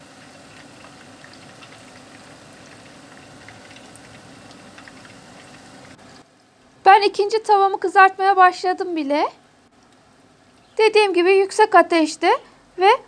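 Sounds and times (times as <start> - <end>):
oil crackles: 0.0 - 6.7
deep-frying sizzling and bubbling: 0.0 - 11.0.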